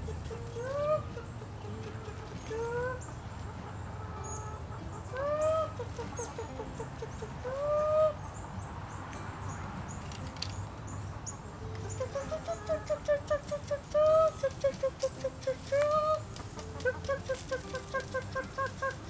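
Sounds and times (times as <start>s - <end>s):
person making chicken calls: 0.0s - 3.2s, 4.2s - 8.3s, 11.5s - 19.0s
hens clucking: 0.0s - 9.2s, 10.4s - 19.0s.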